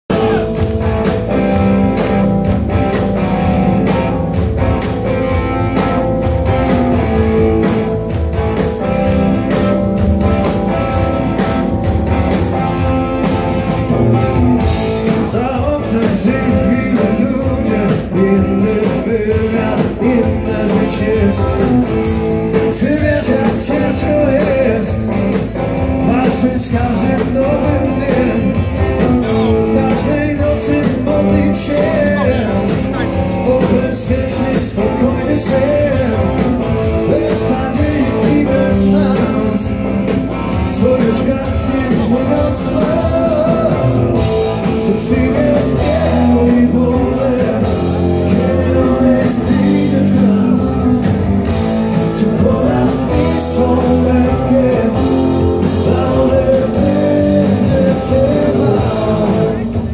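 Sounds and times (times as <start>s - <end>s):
man singing: 0.1s - 2.3s, 14.6s - 59.9s
live blues-rock band: 0.1s - 59.9s.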